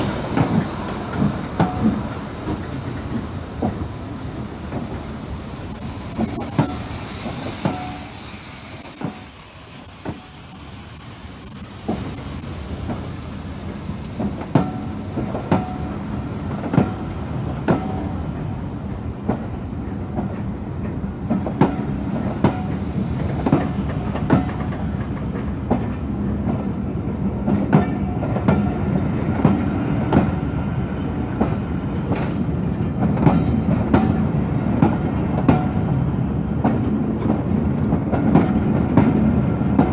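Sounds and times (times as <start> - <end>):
high hiss: 0.0 - 27.4
train rumble: 0.0 - 39.9
train wheels clicking over rail joints: 0.0 - 39.9.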